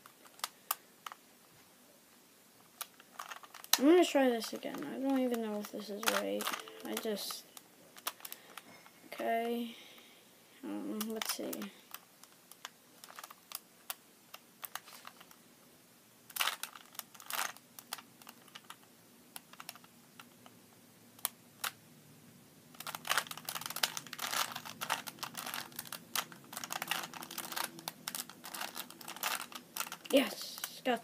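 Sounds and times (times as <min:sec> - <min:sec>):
puzzle cube layers clicking: 0:02.7 - 0:07.4, 0:11.0 - 0:15.4, 0:16.3 - 0:20.6, 0:22.8 - 0:30.8.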